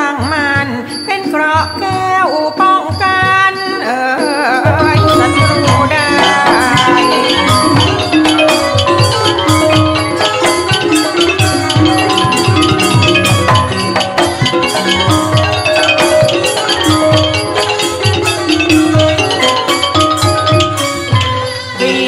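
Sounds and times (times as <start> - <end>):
xylophones playing fast notes: 0.0 - 22.0.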